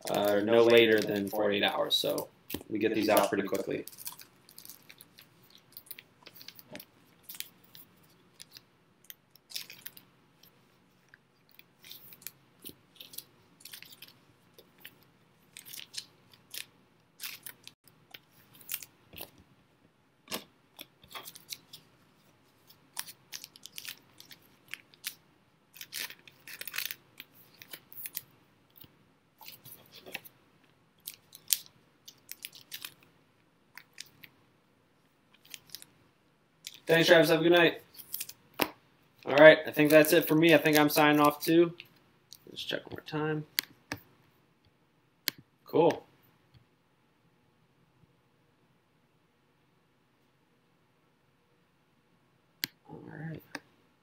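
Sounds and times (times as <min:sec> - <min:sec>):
small items clicking and crinkling: 0:02.0 - 0:19.4, 0:20.3 - 0:21.9, 0:22.6 - 0:30.3, 0:31.0 - 0:33.1, 0:33.7 - 0:34.4, 0:35.3 - 0:35.9, 0:36.6 - 0:37.2, 0:37.9 - 0:42.5.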